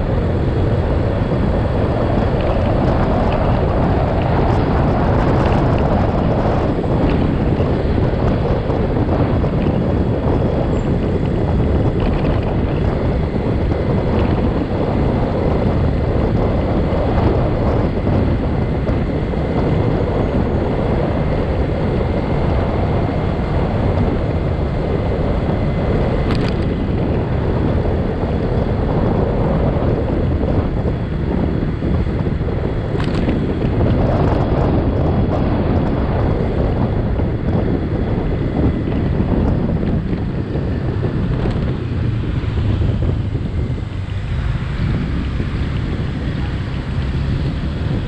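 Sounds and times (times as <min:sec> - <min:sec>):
street traffic: 0:00.0 - 0:48.0
wind buffeting microphone: 0:00.0 - 0:48.0.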